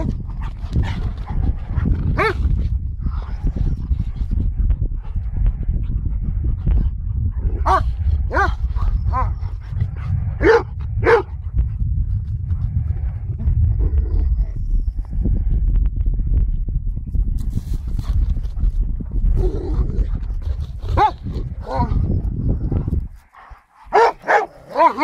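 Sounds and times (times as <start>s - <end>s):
steady low rumble: 0.0s - 25.0s
dogs barking: 2.2s - 2.4s, 7.6s - 9.4s, 10.4s - 11.3s, 21.0s - 21.9s, 23.4s - 25.0s.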